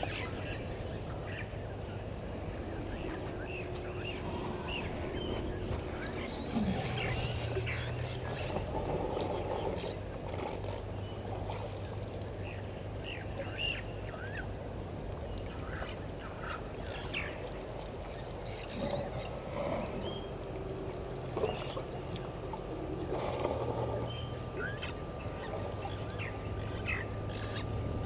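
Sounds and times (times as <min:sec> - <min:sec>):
low hum: 0:00.0 - 0:28.0.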